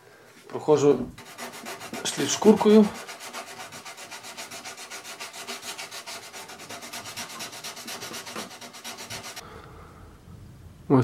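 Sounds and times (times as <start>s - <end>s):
sandpaper rubbing on wood: 1.2s - 9.4s.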